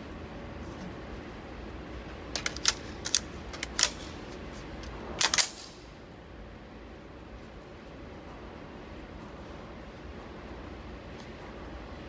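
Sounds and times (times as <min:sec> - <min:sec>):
low steady hum: 0:00.0 - 0:12.0
pistol metallic clicks: 0:02.3 - 0:04.2, 0:05.2 - 0:05.9.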